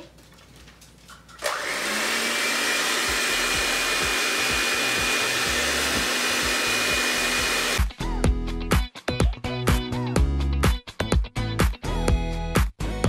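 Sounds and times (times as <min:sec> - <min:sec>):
electric hand mixer whining: 0:01.4 - 0:07.9.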